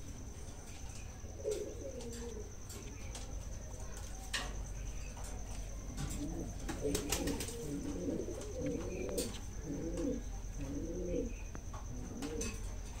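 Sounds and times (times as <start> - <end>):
pigeons cooing: 0.7 - 13.0.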